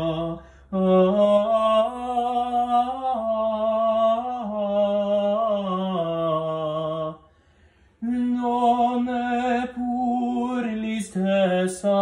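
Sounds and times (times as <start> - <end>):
man singing opera: 0.0 - 7.3, 8.0 - 12.0.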